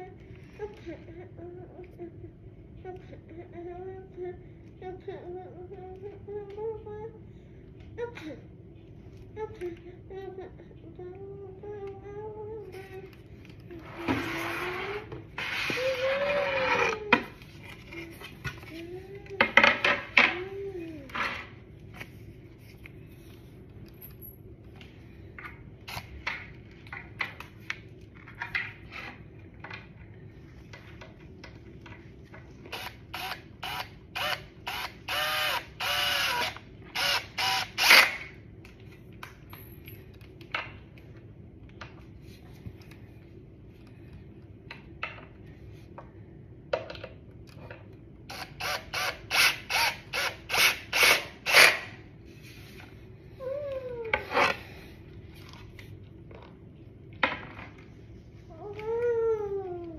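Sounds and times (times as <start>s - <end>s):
cordless drill driving screws: 32.7s - 38.2s.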